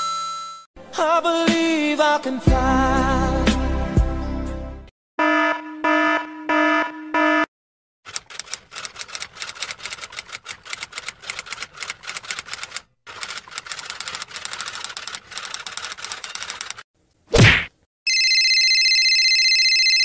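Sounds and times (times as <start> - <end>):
typewriter keys clacking: 8.1 - 16.8.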